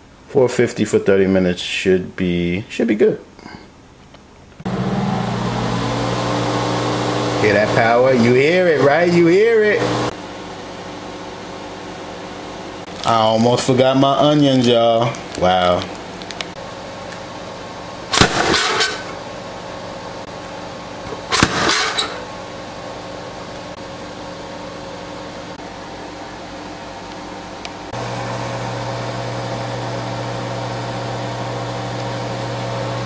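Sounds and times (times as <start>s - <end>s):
convection oven humming: 3.4s - 33.0s.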